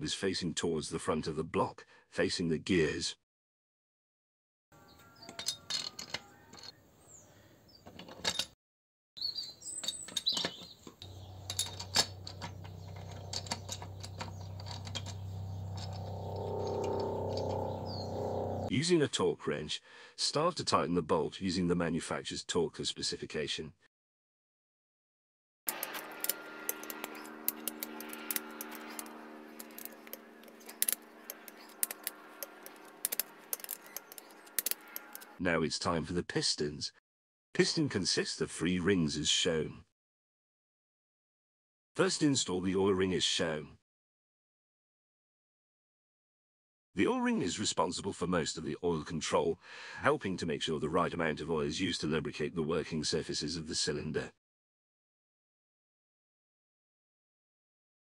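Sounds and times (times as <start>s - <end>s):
metal bearing caps clinking: 5.2s - 6.7s, 9.8s - 16.1s, 25.7s - 35.4s
steady low hum: 11.0s - 18.7s, 25.7s - 35.4s
torque wrench ratcheting clicks: 25.7s - 35.3s.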